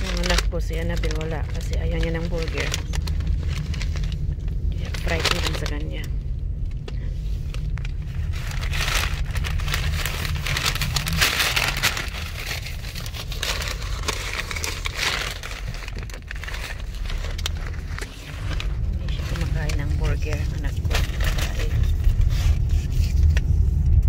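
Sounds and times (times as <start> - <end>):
paper bags crinkling: 0.0 - 6.1, 6.9 - 22.9
car engine low rumble: 0.0 - 24.0.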